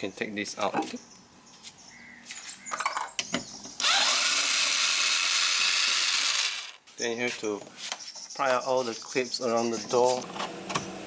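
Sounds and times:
power drill-driver spinning: 3.8 - 6.8.

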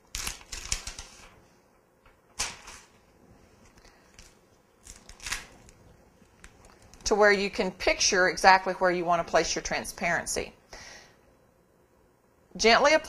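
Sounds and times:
plastic film crinkling: 0.0 - 1.4, 3.6 - 7.2.

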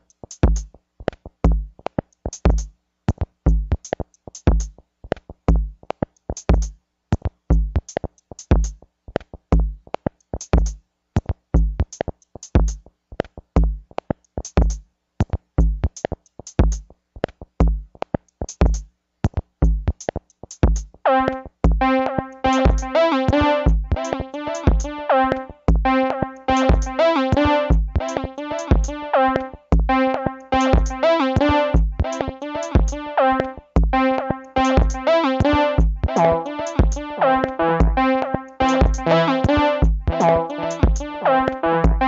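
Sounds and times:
drum machine beat: 0.0 - 42.0
synthesizer chord: 21.1 - 42.0.

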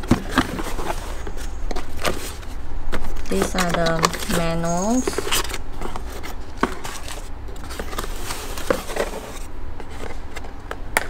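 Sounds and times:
steady low hum: 0.0 - 6.6
paper and cardboard rustling: 0.0 - 10.5.

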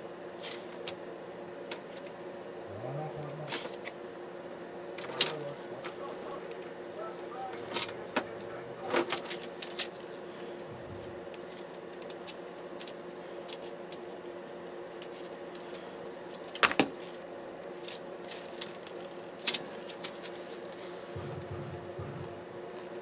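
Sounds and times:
steady low hum: 2.3 - 13.4, 20.6 - 23.0.

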